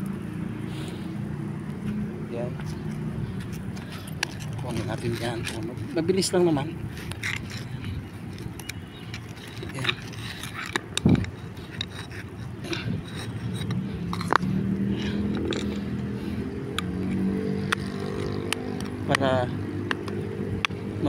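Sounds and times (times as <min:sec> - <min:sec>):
gritty scraping and rubbing: 0:00.0 - 0:20.7
steady engine hum: 0:00.0 - 0:21.0
screwdriver prying brick: 0:07.0 - 0:14.5.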